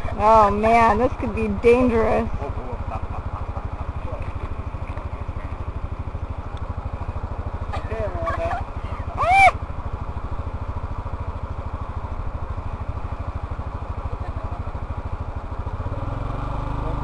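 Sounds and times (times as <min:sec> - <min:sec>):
moped engine running: 0:00.0 - 0:17.0
person crying out high-pitched: 0:08.4 - 0:09.6.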